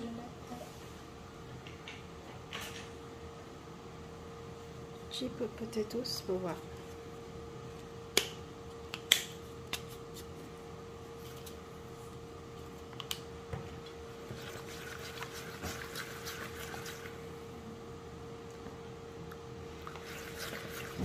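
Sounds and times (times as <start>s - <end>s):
faint steady hum: 0.0s - 21.0s
brush swishing in bowl: 14.3s - 17.2s, 19.9s - 21.0s.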